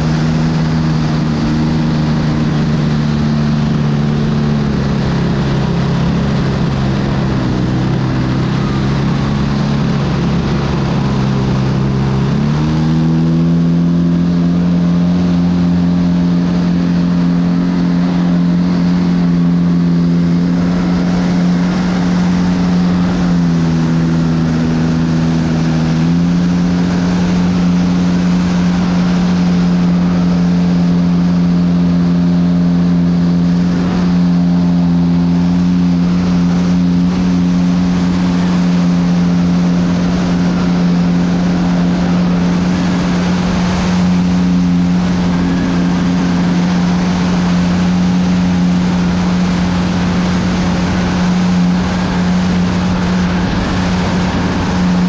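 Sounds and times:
model plane motor and propeller hum: 0.0s - 55.0s
wind rushing: 39.9s - 55.0s.

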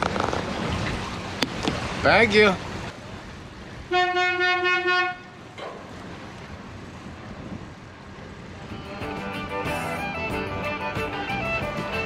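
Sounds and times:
background music: 8.7s - 12.0s.

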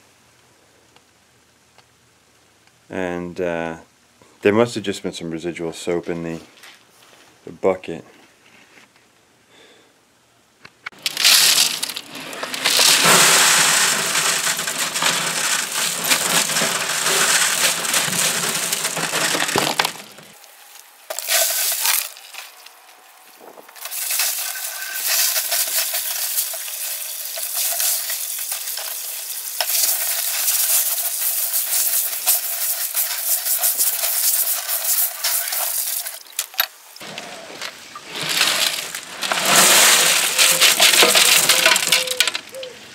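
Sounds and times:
glass pieces clinking and rattling: 10.9s - 20.4s, 21.1s - 22.5s, 23.8s - 36.7s, 38.2s - 42.6s
water hissing: 23.8s - 36.3s.

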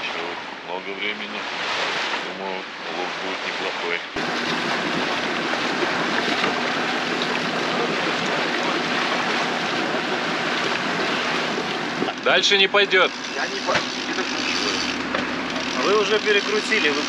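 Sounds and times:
sea water rushing hiss: 1.2s - 12.1s.

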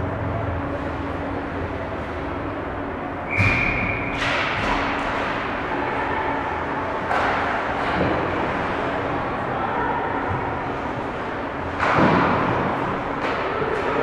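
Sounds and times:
hockey sticks and puck clacking: 3.4s - 5.6s, 6.9s - 8.4s, 11.7s - 14.0s.

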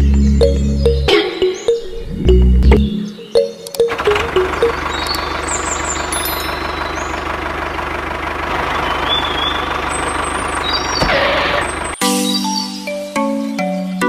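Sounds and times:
music with mallet notes: 0.0s - 5.3s
engine running: 0.0s - 12.0s.

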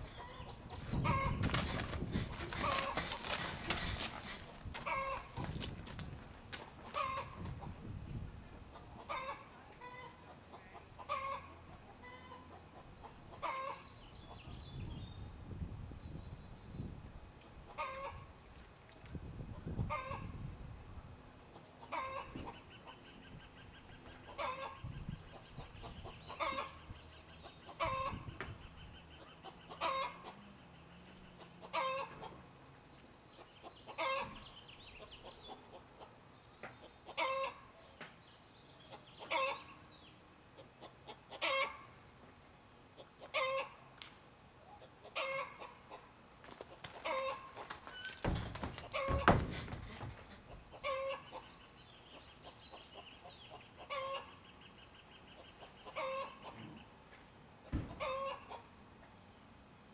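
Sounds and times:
horse hooves thumping: 0.8s - 7.6s, 46.4s - 50.7s.

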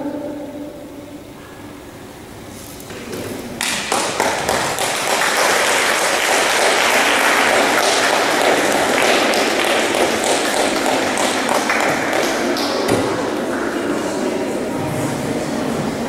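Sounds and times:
applause: 3.6s - 13.1s.

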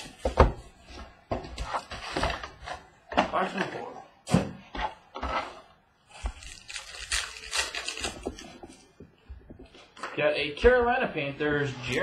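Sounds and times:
wrapper rustling and crinkling: 6.2s - 8.9s.

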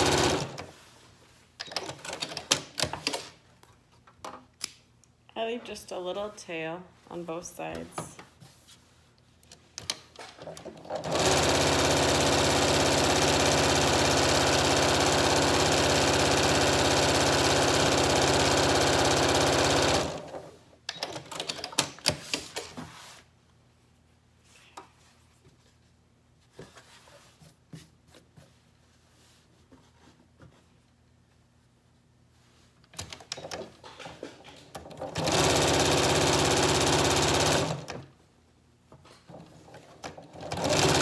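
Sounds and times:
sewing machine stitching: 0.0s - 0.7s, 10.4s - 22.7s, 33.0s - 38.0s, 39.3s - 41.0s.

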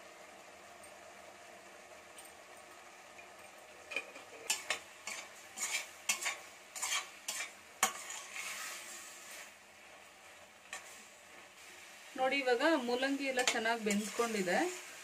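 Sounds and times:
food sizzling: 0.0s - 15.0s
metal spatula scraping pot: 3.9s - 9.5s, 12.9s - 14.5s.

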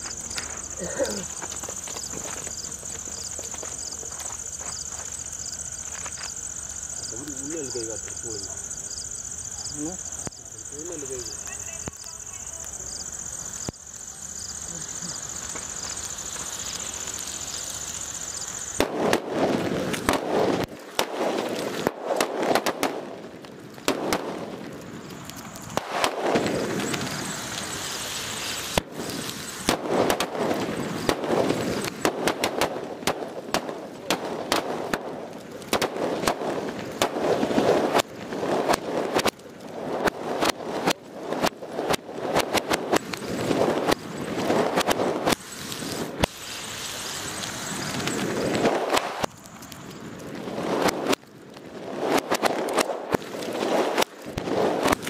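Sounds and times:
fuse hissing and sputtering: 0.0s - 20.7s, 25.1s - 32.8s, 40.0s - 49.8s
firecrackers banging and crackling: 0.0s - 55.0s.

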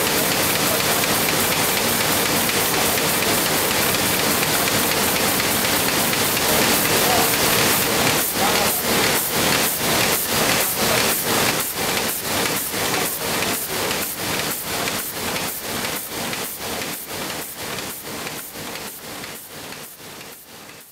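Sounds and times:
printing press running: 0.0s - 20.9s.

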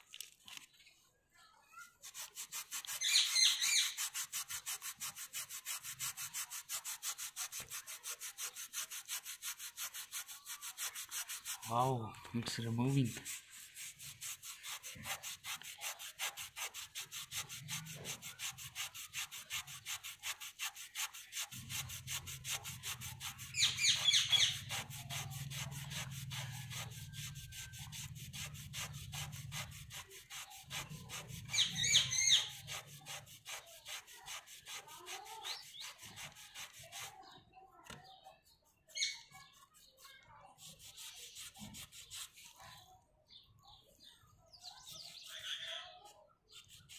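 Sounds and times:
cloth scrubbing metal rim: 2.0s - 11.9s, 12.6s - 37.2s.

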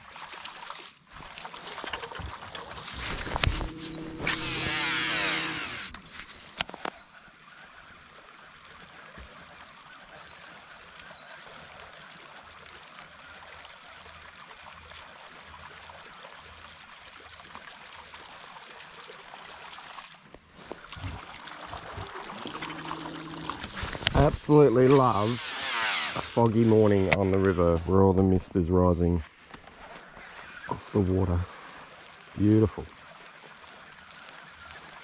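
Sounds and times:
river water washing around boat: 0.0s - 6.7s, 13.8s - 27.8s.

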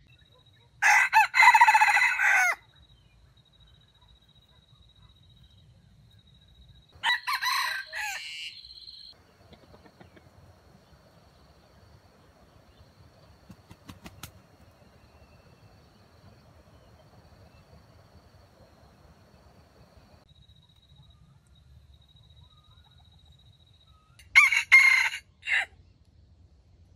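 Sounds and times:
rooster crowing: 0.8s - 2.6s, 7.0s - 8.9s, 24.2s - 25.7s.

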